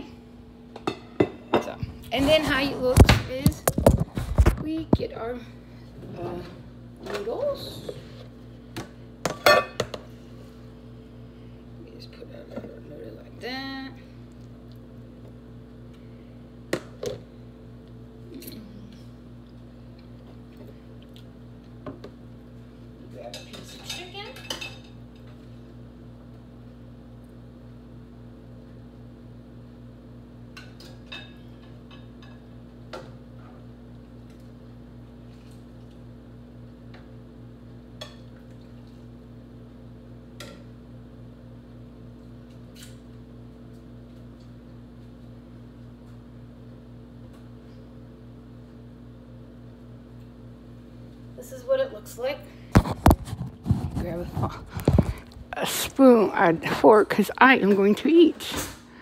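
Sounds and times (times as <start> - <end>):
steady low hum: 0.0 - 59.0
utensils clinking against dishes: 23.3 - 25.0.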